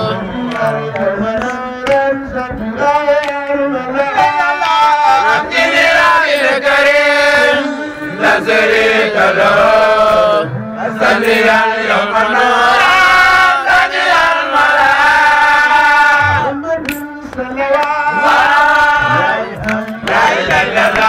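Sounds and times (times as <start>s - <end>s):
man chanting over sound system: 0.0s - 6.4s, 9.8s - 12.5s, 16.2s - 21.0s.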